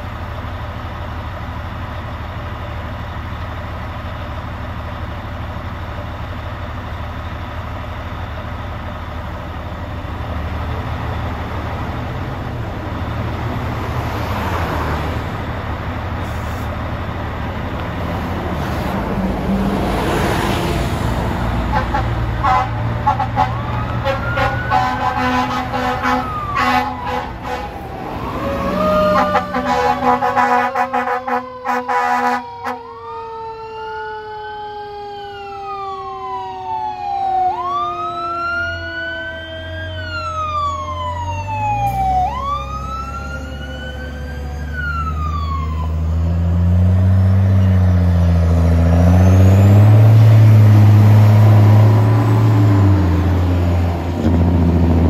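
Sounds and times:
fire truck siren wailing: 0.0 - 55.0
heavy truck engine: 0.0 - 55.0
siren tone sliding down: 23.4 - 25.2, 26.0 - 30.4, 31.2 - 55.0.

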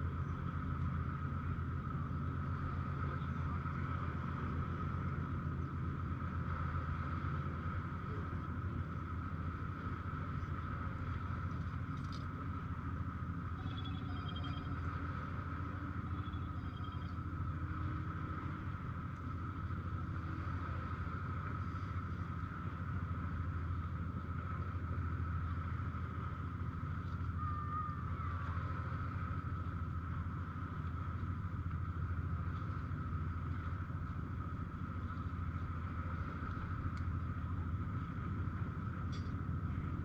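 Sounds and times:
low engine drone: 0.0 - 40.0
faint high chirps: 13.6 - 14.9, 16.0 - 17.3.

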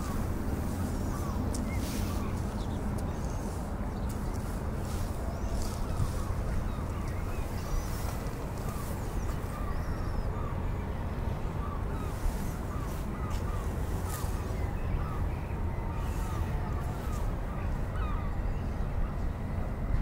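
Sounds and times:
crows calling: 0.0 - 2.8.

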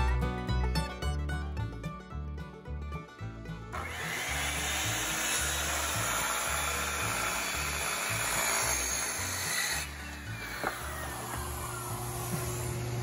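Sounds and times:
circular saw cutting wood: 3.7 - 13.0.

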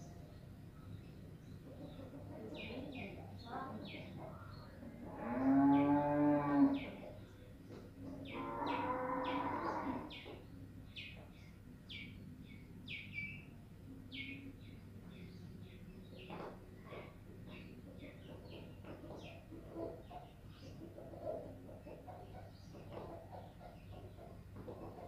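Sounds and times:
small birds chirping: 0.0 - 25.0
low animal calls: 8.2 - 10.2.

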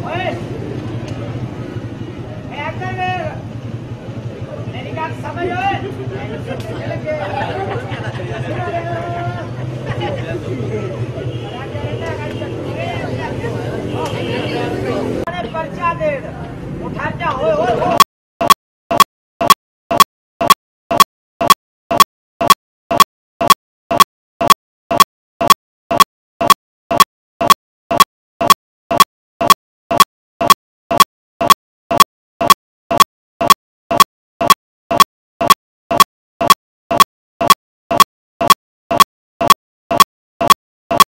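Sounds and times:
sharp pitched ticks: 17.9 - 41.0.

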